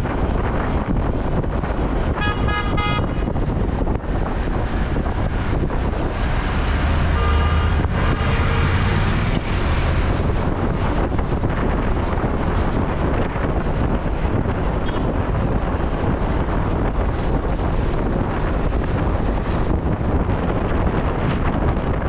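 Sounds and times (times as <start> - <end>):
city traffic rumbling: 0.0 - 22.0
wind rushing over microphone: 0.0 - 22.0
short car horn toot: 2.2 - 3.1, 7.2 - 8.6
faint long horn-like tone: 7.2 - 8.8.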